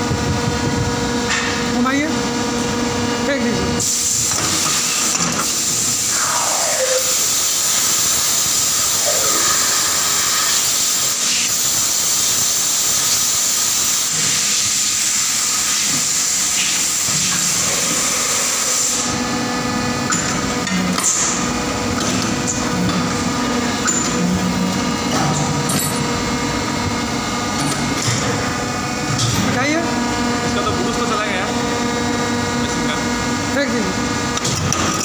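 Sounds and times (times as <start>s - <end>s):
die casting machine hissing: 3.7s - 33.9s
machine hum: 5.6s - 10.6s, 16.9s - 35.0s.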